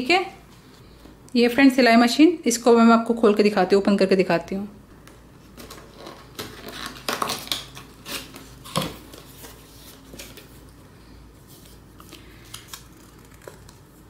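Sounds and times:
cardboard and paper scraping rustling: 0:05.5 - 0:10.7.

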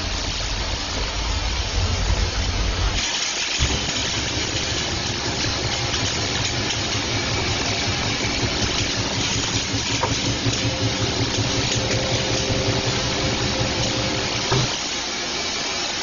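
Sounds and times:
machinery hiss: 0:00.0 - 0:16.0
machinery hum: 0:00.0 - 0:16.0.

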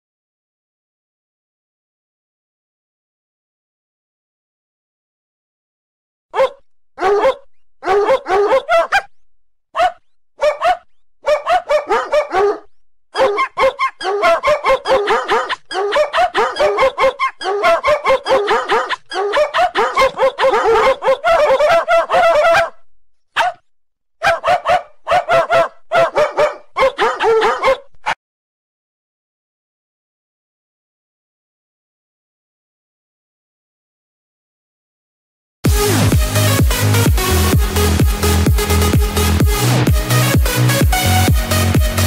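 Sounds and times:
ringtone of dog barks and yips: 0:06.3 - 0:09.1, 0:09.8 - 0:22.8, 0:23.4 - 0:23.6, 0:24.2 - 0:28.2.

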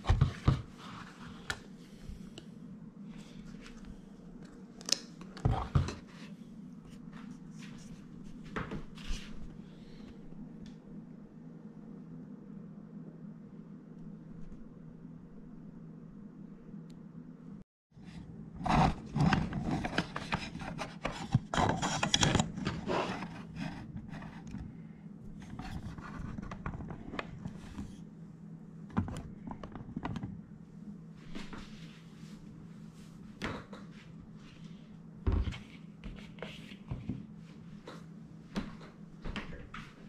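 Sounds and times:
steady low hum: 0:00.0 - 0:40.0
rubbing and scraping on table: 0:18.6 - 0:24.7, 0:25.4 - 0:28.0.

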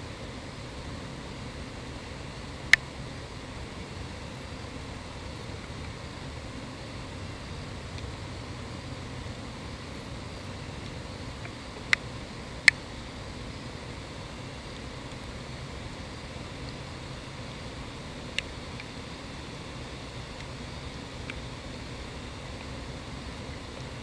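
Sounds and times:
low outdoor rumble and hiss: 0:00.0 - 0:24.0.

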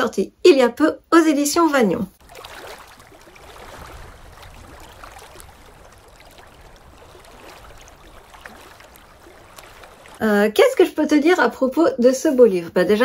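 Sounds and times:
trickle of running water: 0:02.2 - 0:10.2.

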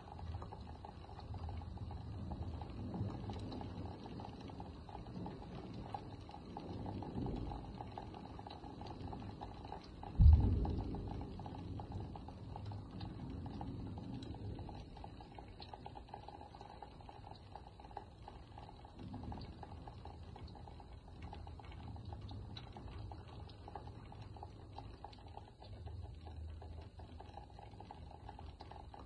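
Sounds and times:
steady rain: 0:00.0 - 0:29.0
thunder clap and rumble: 0:02.1 - 0:15.0.

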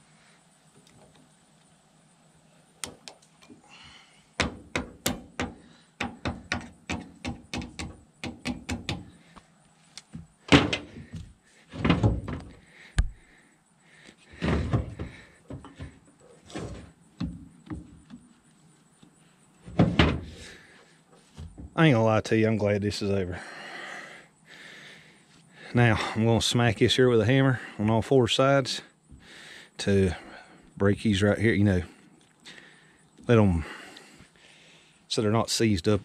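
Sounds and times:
metal tapping: 0:04.4 - 0:09.1
heavy metal clunks: 0:10.5 - 0:13.2.

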